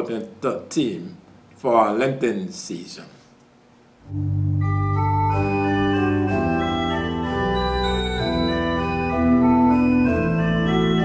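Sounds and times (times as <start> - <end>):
slow sustained chords: 4.0 - 11.0.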